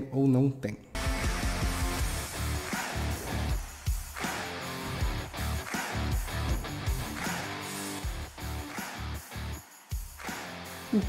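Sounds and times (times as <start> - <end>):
guitar jingle music: 1.0 - 9.6.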